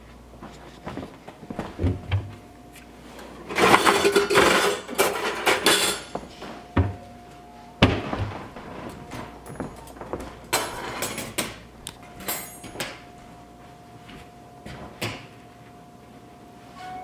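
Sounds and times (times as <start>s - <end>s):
wire rack clattering and scraping: 3.5s - 6.2s, 8.3s - 11.6s.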